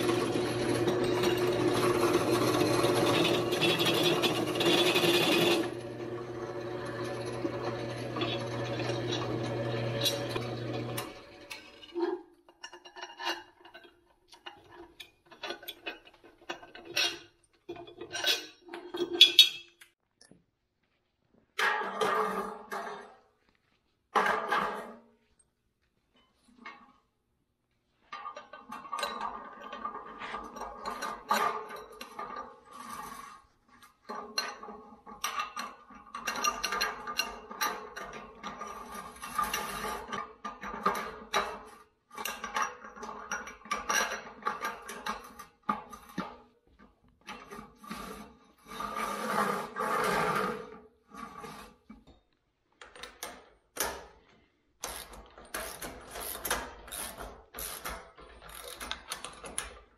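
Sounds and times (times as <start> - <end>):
metal tubing clanking and scraping: 0.0 - 19.9, 28.0 - 46.5.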